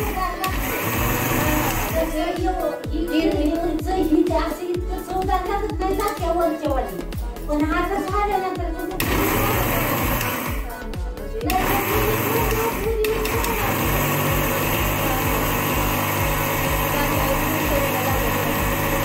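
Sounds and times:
electric mixer grinder running: 0.0s - 2.4s, 8.9s - 10.8s, 11.4s - 19.0s
background music with a beat: 0.0s - 19.0s.

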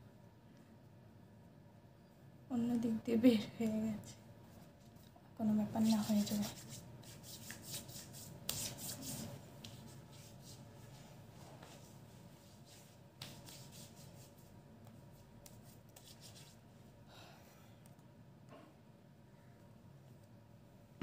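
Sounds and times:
hands rubbing lotion on skin: 5.8s - 11.0s, 11.6s - 16.6s.

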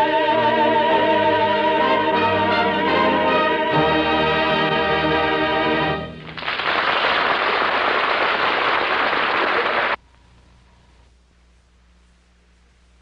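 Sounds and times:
audience applause: 6.2s - 10.0s.

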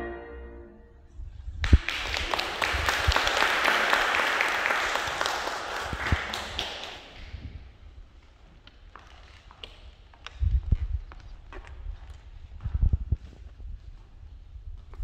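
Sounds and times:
audience applauding: 1.6s - 7.3s.

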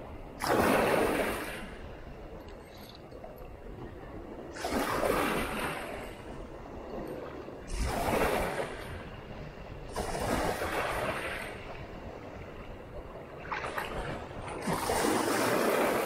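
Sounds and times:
waves washing against rocks: 0.4s - 1.9s, 4.4s - 6.6s, 7.2s - 16.0s.

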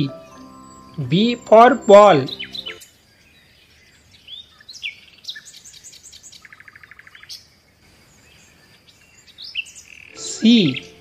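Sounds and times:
birds chirping: 0.0s - 11.0s
fast even bird trill: 0.1s - 2.8s.

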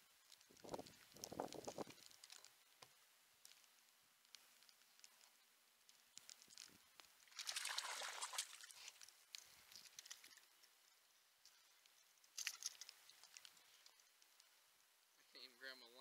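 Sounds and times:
light ticks of rain: 0.0s - 16.0s
fish splashing at water surface: 7.3s - 8.9s.

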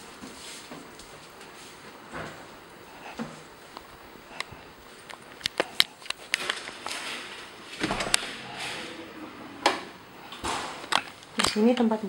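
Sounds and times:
footsteps and handling clicks: 3.7s - 7.0s
door opening thump: 7.8s - 8.3s.

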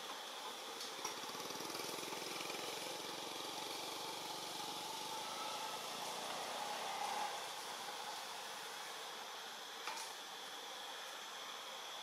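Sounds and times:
small engine running: 0.0s - 8.5s.

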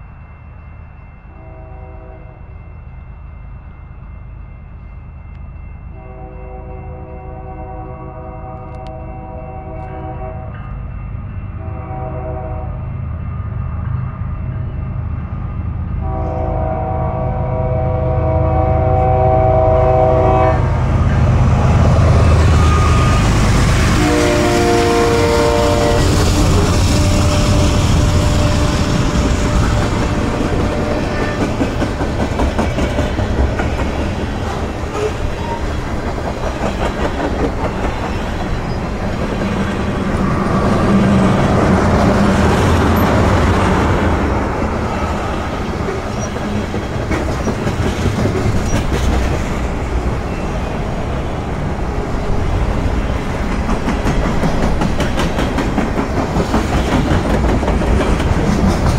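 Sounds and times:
train horn: 1.3s - 2.4s, 6.0s - 10.7s, 11.6s - 12.9s, 16.0s - 21.1s, 21.8s - 31.7s
wheels clattering on rails: 25.9s - 50.5s, 52.6s - 58.9s.

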